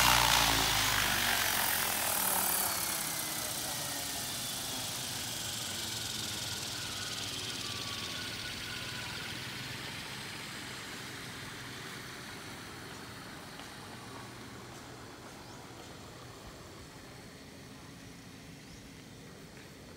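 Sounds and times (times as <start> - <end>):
rotor rushing noise: 0.0 - 10.6.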